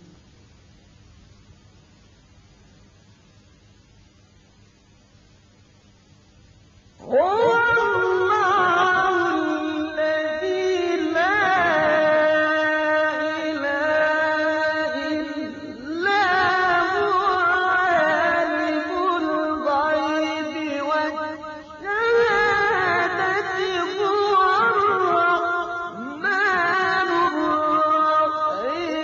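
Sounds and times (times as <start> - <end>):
man chanting melodically: 7.0 - 29.0.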